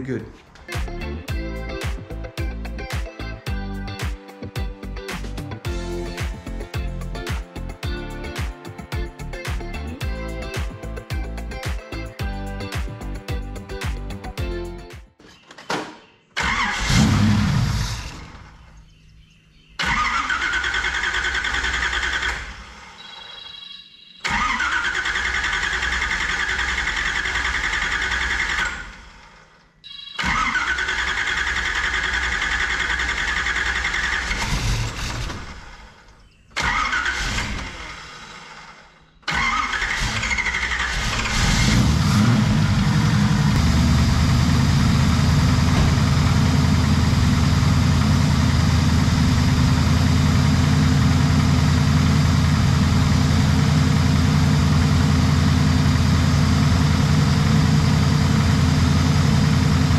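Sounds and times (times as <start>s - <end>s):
engine cranking: 16.4s - 18.6s, 19.8s - 23.0s, 24.2s - 29.5s, 30.2s - 55.6s
car engine idling: 39.9s - 59.9s.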